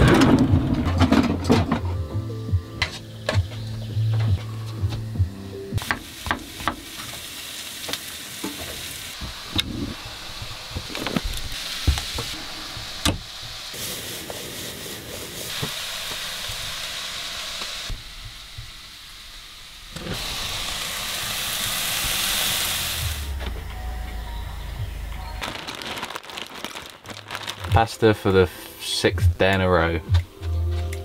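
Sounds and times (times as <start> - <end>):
vegetables sizzling in a pan: 5.8 - 23.3.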